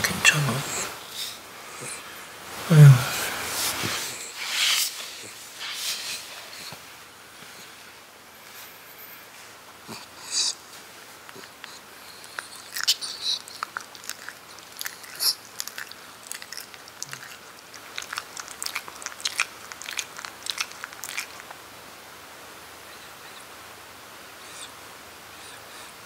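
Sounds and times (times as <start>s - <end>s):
dog mouth wet clicks and smacks: 11.3s - 21.6s.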